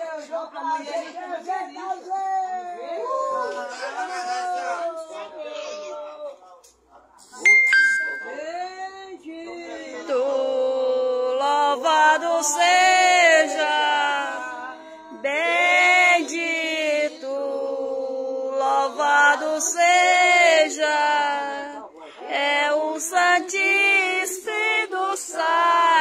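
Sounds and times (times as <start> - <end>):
group singing religious chant: 9.2 - 26.0.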